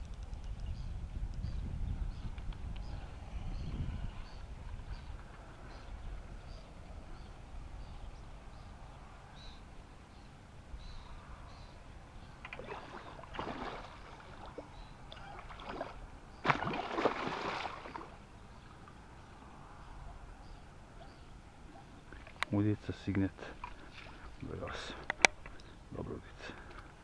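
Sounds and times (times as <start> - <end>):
fish splashing in water: 12.4 - 18.2.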